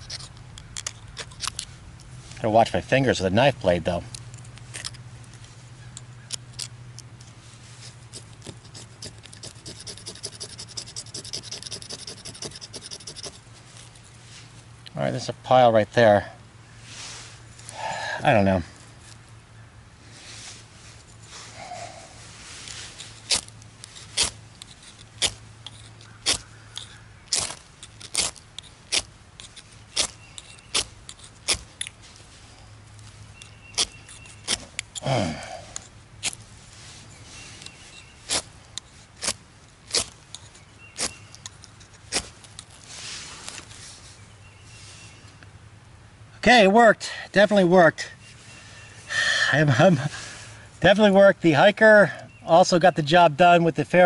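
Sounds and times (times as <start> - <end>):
knife scraping fire-starter bar: 0.0 - 1.7, 7.8 - 14.2, 22.6 - 32.3, 33.0 - 44.0.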